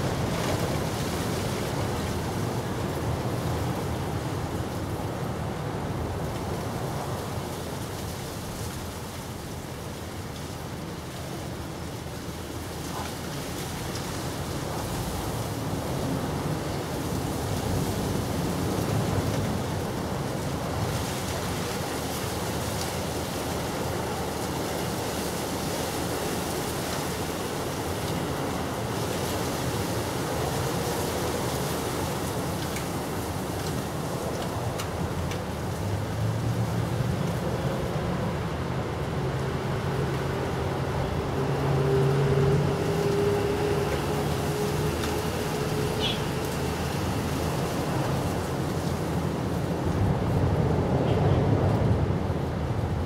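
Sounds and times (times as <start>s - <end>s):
rushing outdoor background noise: 0.0s - 53.0s.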